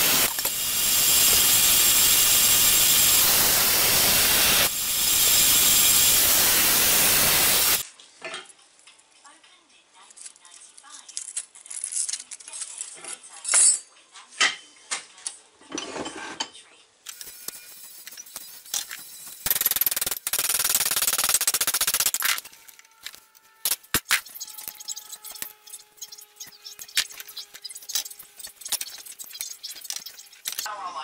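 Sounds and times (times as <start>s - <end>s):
loud steady noise: 0.0s - 7.8s.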